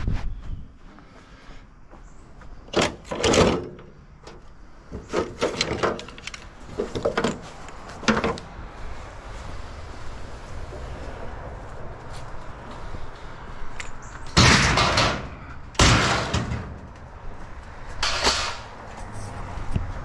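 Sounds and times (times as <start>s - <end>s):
scrap metal knocks and scrapes: 4.9s - 8.4s, 14.3s - 17.1s, 17.9s - 18.9s.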